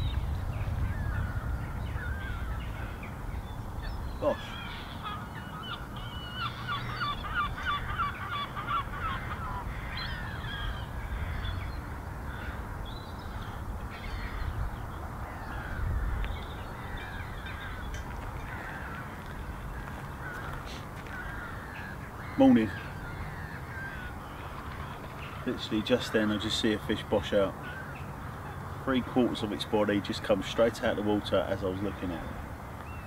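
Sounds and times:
wild birds calling: 0.0 - 33.0.

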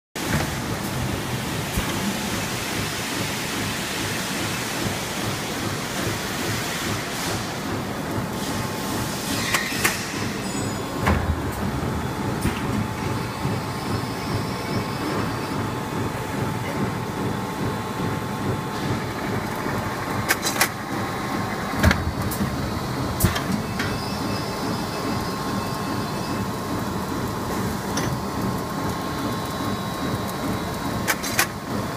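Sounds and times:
machine humming with whine: 7.5 - 31.9
machine clicks and knocks: 18.8 - 20.8, 31.0 - 31.6.

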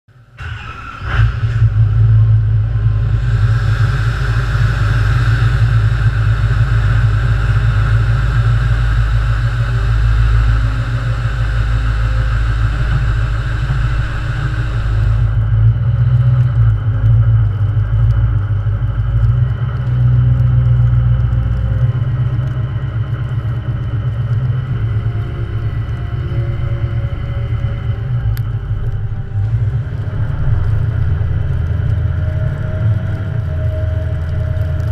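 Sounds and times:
diesel engine rumbling: 0.1 - 34.9
high-pitched whir: 0.4 - 19.2.

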